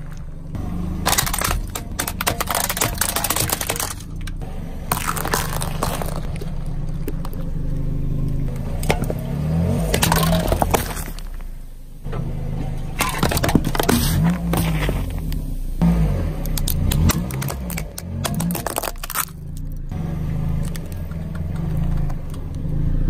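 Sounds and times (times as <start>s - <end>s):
tyre crushing plastic and cans: 0.0s - 7.6s, 8.4s - 11.5s, 12.9s - 15.4s, 16.4s - 19.9s
car engine running: 0.0s - 23.0s.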